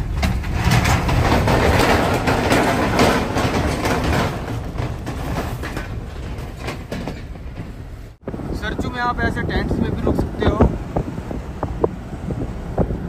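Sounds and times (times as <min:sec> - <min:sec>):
rattling knocks: 0:00.0 - 0:08.3
pickup truck rumbling: 0:00.0 - 0:13.0.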